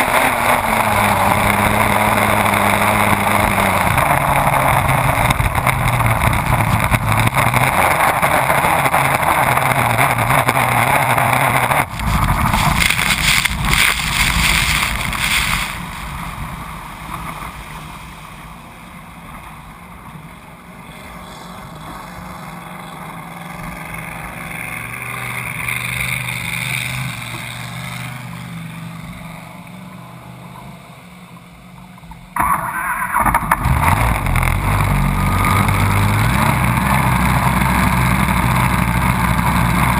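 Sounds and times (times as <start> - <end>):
boat engine running hard: 0.0 - 17.5
water spray: 12.0 - 16.0.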